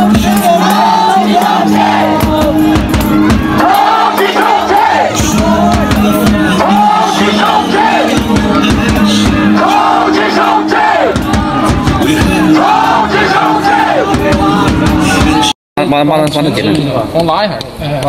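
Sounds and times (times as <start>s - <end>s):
football crowd chanting: 0.0s - 15.5s.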